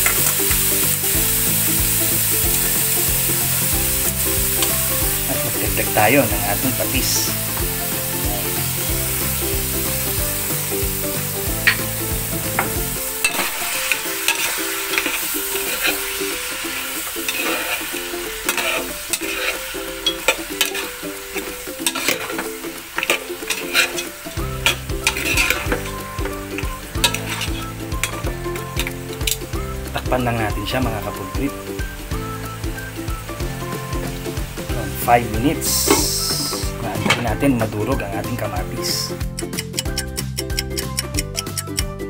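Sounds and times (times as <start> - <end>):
meat sizzling in a pan: 0.0 - 39.2
metal spatula scraping a pan: 11.7 - 29.4.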